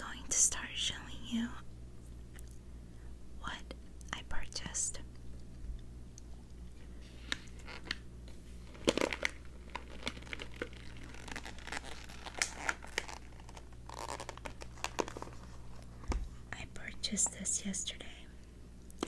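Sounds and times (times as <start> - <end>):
coffee bag crinkling: 8.6 - 16.2.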